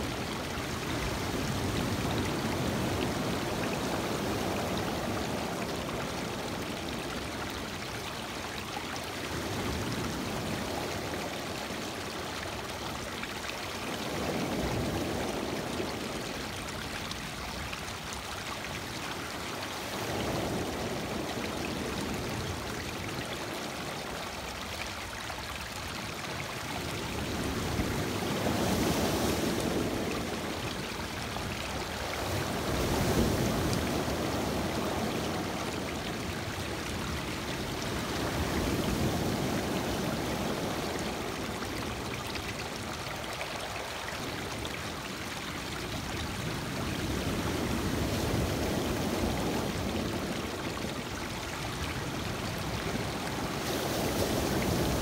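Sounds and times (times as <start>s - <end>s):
waves breaking on stony shore: 19.6s - 23.1s, 27.0s - 31.1s, 31.7s - 42.8s, 46.0s - 55.0s.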